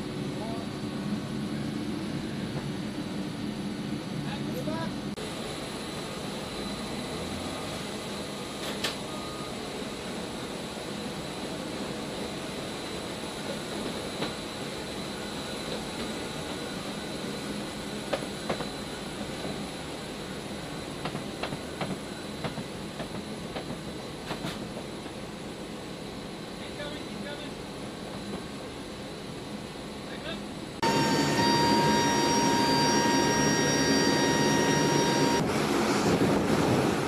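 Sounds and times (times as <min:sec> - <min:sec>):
turboprop engines with high whine: 0:00.0 - 0:37.0.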